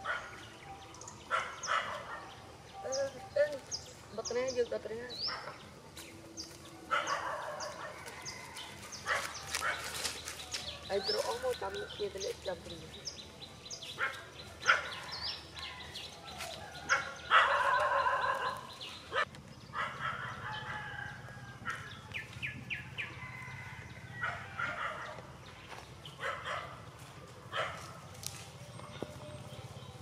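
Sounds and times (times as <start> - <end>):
small birds chirping: 0.0 - 30.0
rooster crowing: 23.0 - 25.0.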